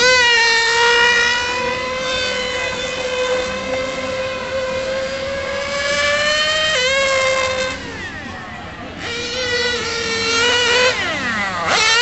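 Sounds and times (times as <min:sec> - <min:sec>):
model car engine high-pitched whine: 0:00.0 - 0:12.0.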